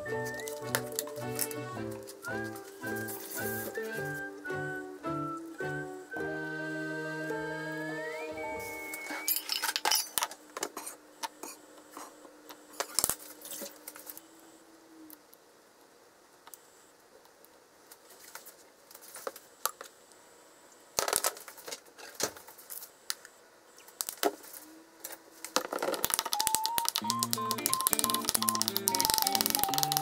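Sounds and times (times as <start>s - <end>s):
light background music: 0.0s - 9.5s, 26.3s - 30.0s
crinkly clicks: 25.1s - 30.0s
avocado being mashed: 26.1s - 30.0s.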